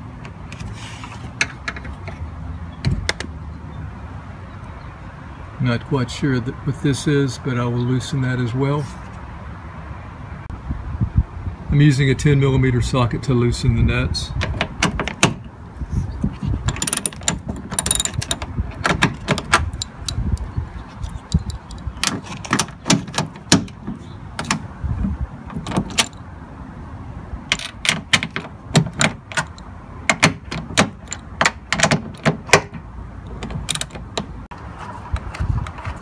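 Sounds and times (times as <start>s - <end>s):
ratchet wrench clicking: 16.7s - 18.4s, 33.6s - 34.0s
metal tools scraping and knocking: 16.7s - 20.2s.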